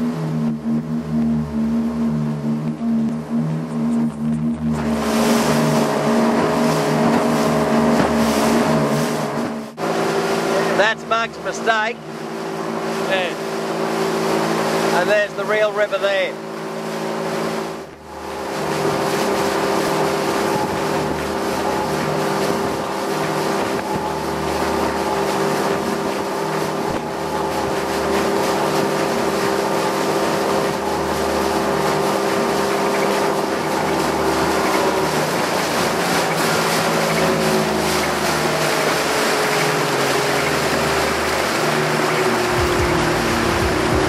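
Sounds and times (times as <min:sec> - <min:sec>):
outboard motor drone: 0:00.0 - 0:44.0
water: 0:00.0 - 0:44.0
wind noise on microphone: 0:20.3 - 0:21.5.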